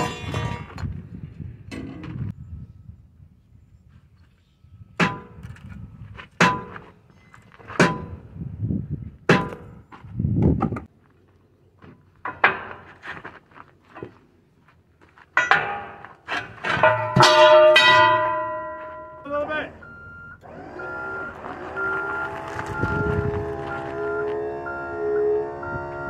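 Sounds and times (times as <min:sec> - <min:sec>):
ringing metal clangs: 0:00.0 - 0:00.9, 0:15.4 - 0:19.9.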